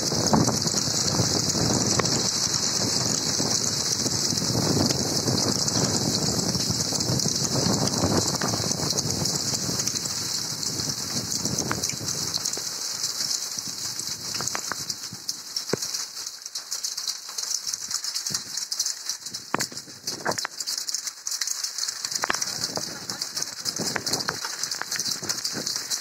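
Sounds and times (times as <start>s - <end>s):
rain falling: 0.0s - 26.0s.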